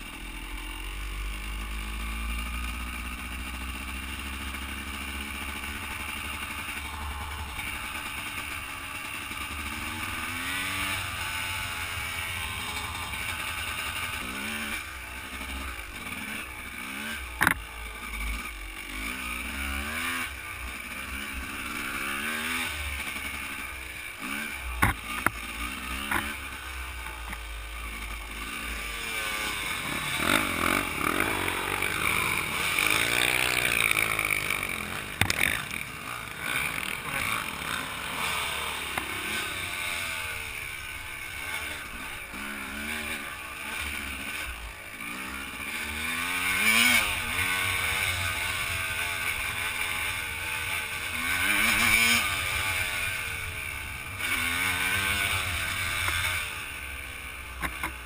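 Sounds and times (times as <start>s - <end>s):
dirt bike engine revving: 0.0s - 58.0s
sharp knocks from bike: 17.4s - 17.6s.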